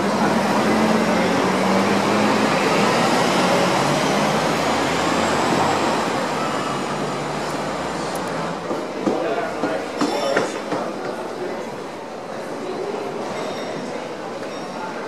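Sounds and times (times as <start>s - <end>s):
traffic rushing: 0.0s - 11.3s.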